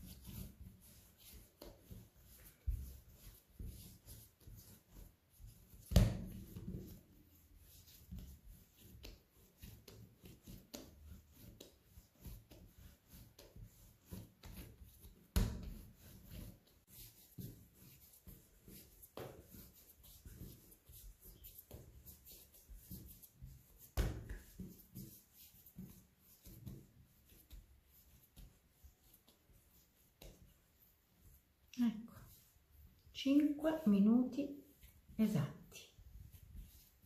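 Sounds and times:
dough kneading rubbing and taps: 0:00.0 - 0:37.0
dough thumping on worktop: 0:05.8 - 0:06.8, 0:23.8 - 0:24.7.

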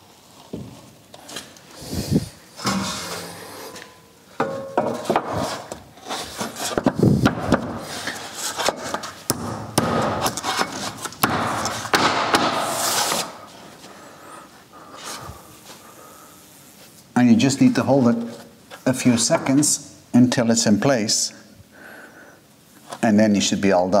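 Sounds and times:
board scraping against wall: 0:01.8 - 0:09.2, 0:10.2 - 0:13.4.

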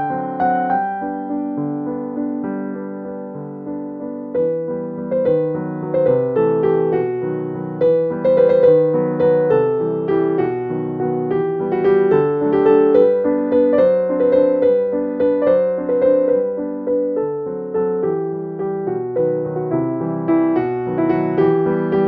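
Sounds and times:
gentle piano melody: 0:00.0 - 0:22.0.

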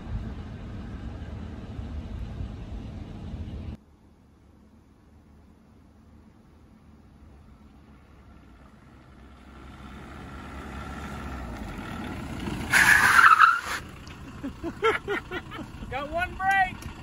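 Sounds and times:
diesel truck driving past: 0:00.0 - 0:03.8, 0:07.2 - 0:17.0
man laughing: 0:14.3 - 0:16.0.

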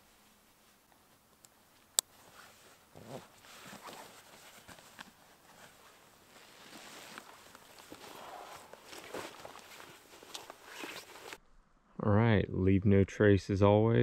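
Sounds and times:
footsteps scuffing and crunching: 0:05.6 - 0:11.4.

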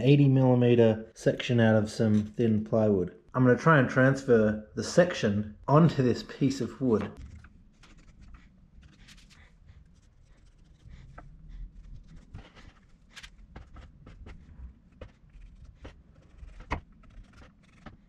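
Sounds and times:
faint scraping and rubbing on wood: 0:06.8 - 0:18.0.

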